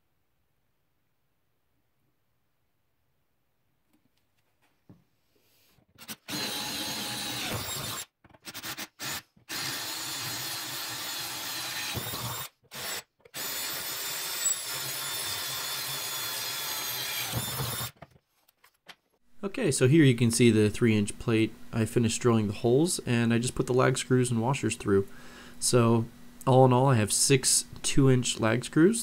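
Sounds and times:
electric drill boring steel: 0:06.0 - 0:18.0.

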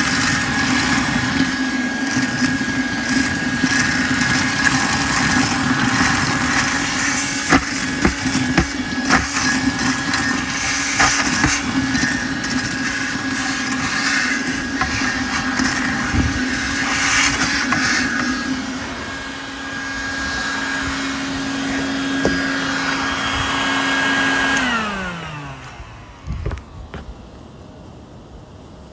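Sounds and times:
cereal rattling through hose: 0:00.0 - 0:18.2
vacuum motor winding down: 0:00.0 - 0:27.0
shop vacuum droning: 0:00.0 - 0:27.4.

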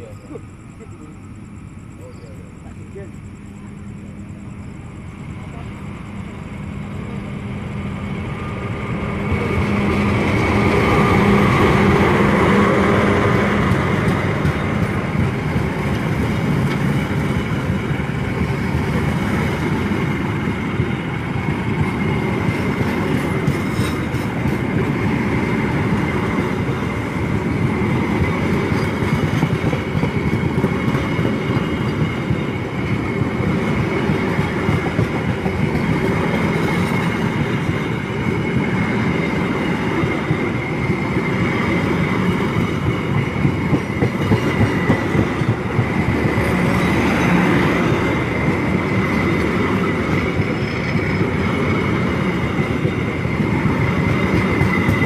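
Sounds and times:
thin steady whine: 0:00.0 - 0:13.5
heavy railway machinery rumble: 0:00.0 - 0:55.0.

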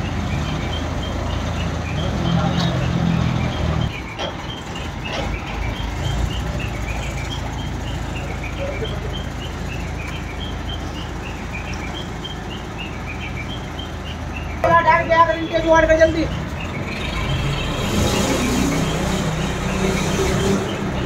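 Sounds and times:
heavy engine idling: 0:00.0 - 0:21.0.

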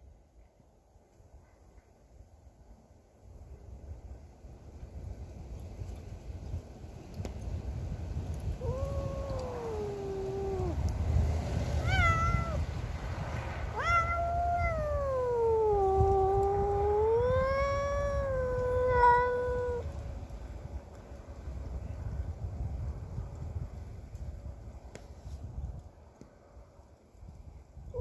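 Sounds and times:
cat yowling: 0:08.6 - 0:10.8, 0:11.8 - 0:12.7, 0:13.7 - 0:19.9
cat short sharp cry: 0:11.8 - 0:12.6, 0:13.7 - 0:19.8.

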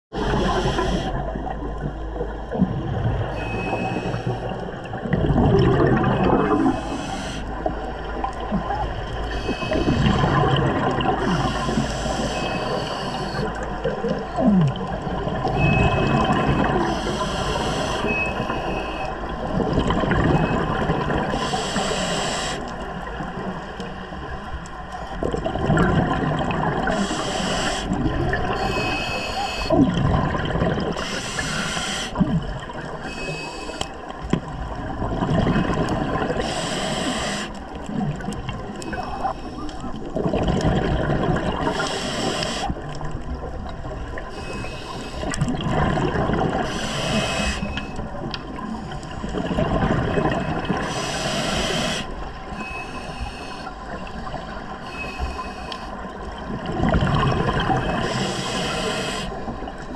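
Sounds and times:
exhaust bubbles gurgling: 0:00.1 - 0:21.5, 0:22.6 - 0:31.4, 0:34.0 - 0:59.9
regulator inhale hiss: 0:00.3 - 0:01.3, 0:06.6 - 0:07.7, 0:11.2 - 0:13.6, 0:16.8 - 0:19.0, 0:21.3 - 0:22.8, 0:26.9 - 0:28.0, 0:31.0 - 0:32.2, 0:36.4 - 0:37.6, 0:41.6 - 0:42.8, 0:44.3 - 0:45.4, 0:46.6 - 0:48.0, 0:50.8 - 0:54.0, 0:54.8 - 0:56.0, 0:58.0 - 0:59.5.

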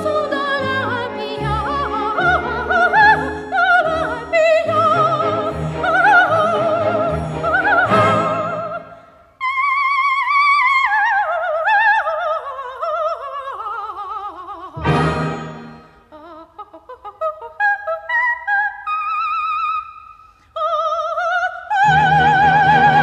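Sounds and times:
operatic high voice singing: 0:00.0 - 0:23.0.

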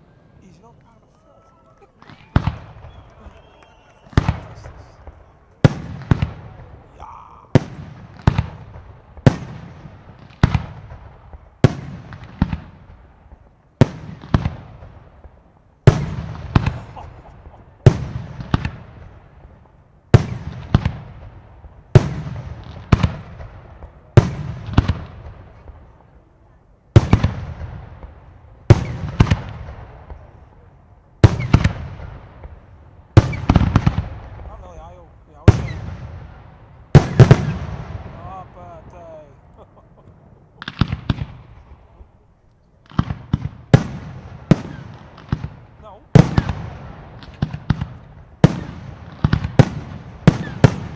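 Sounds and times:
firework bangs with echoing rumble: 0:02.0 - 0:26.3, 0:26.9 - 0:42.2, 0:42.8 - 0:50.9.

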